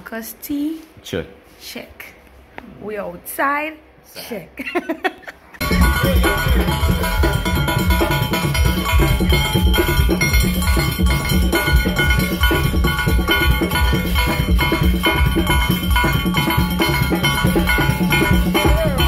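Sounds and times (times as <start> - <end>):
percussion beat: 5.6 - 19.0
steelpans playing a tune: 5.6 - 19.0.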